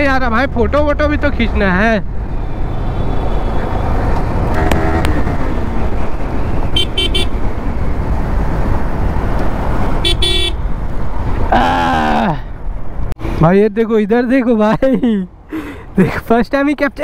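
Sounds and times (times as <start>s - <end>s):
motorcycle road and wind noise: 0.0s - 17.0s
vehicle horns: 2.3s - 5.8s, 6.4s - 7.4s, 10.0s - 10.7s.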